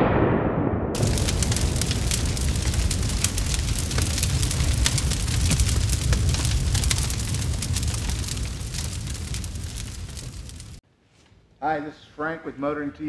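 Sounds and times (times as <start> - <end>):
blast: 0.0 - 10.8
flames roaring and crackling: 1.0 - 10.8.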